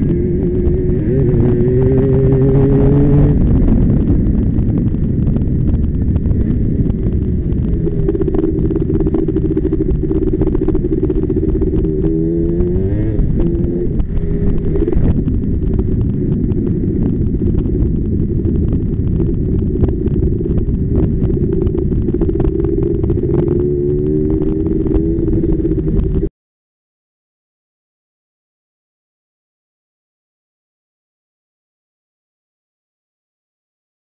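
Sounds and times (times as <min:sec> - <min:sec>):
quad engine revving: 0:00.0 - 0:04.6, 0:06.4 - 0:16.0, 0:19.1 - 0:26.3.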